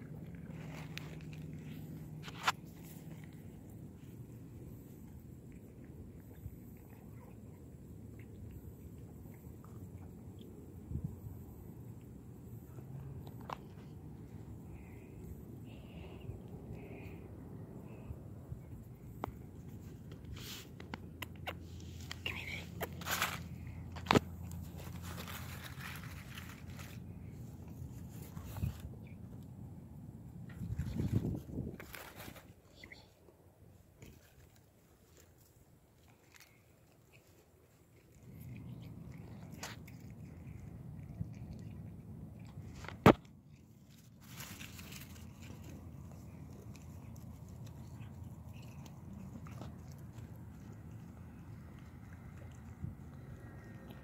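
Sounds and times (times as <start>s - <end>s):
cat chewing: 0.0s - 54.0s
steady low rumble: 0.0s - 54.0s
short rustle: 21.7s - 28.9s
paper wrapping crinkling: 22.8s - 28.8s, 43.8s - 48.4s.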